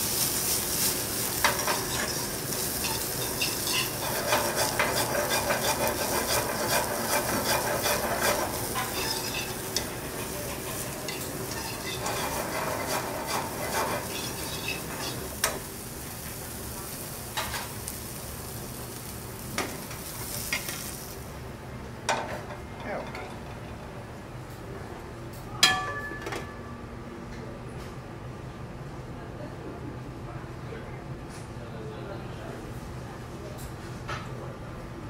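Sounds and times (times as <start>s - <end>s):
vegetables sizzling in oil: 0.0s - 21.4s
metal tongs scraping pan: 1.3s - 15.6s.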